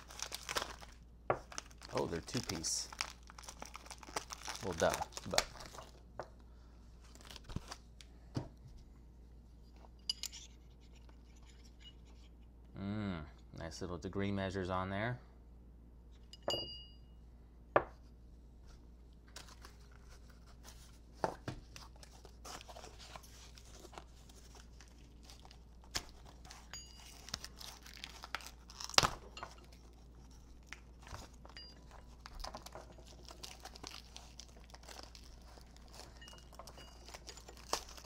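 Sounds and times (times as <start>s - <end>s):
packaging rustling and crinkling: 0.0s - 6.0s, 7.0s - 8.0s, 19.3s - 38.0s.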